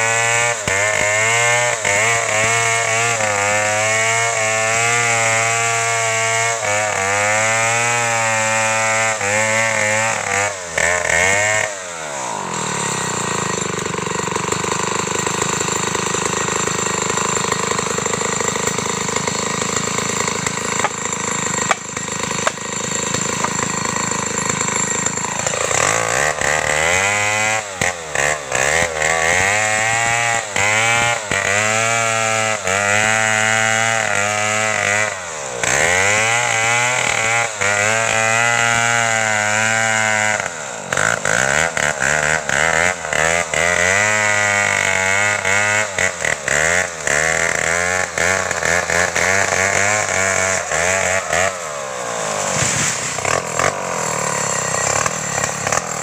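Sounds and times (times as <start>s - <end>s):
chainsaw cutting into tree trunk: 0.0s - 56.0s.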